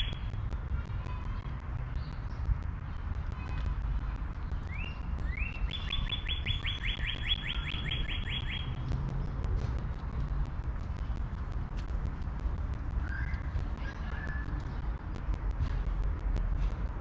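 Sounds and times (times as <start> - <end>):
low rumble: 0.0 - 5.7, 6.5 - 17.0
songbird whistling: 4.7 - 8.8, 13.0 - 13.5.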